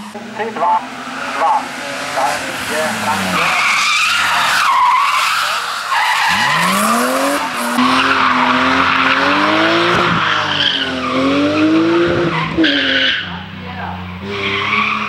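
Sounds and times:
car engine revving: 0.0s - 15.0s
tyres squealing: 1.0s - 11.7s.

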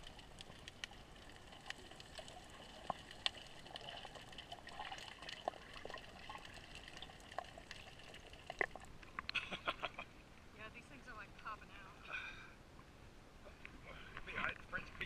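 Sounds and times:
small clicks and crackles: 0.0s - 9.5s
faint underwater bubbling: 0.0s - 12.5s.

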